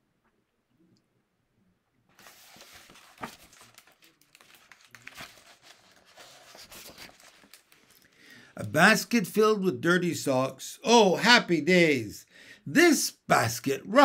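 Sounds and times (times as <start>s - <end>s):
paper pages rustling: 2.1s - 8.2s.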